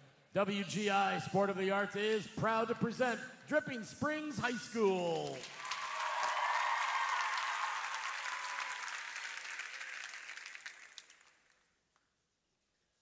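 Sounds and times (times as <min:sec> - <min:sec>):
crowd applauding and cheering: 0:05.2 - 0:11.5.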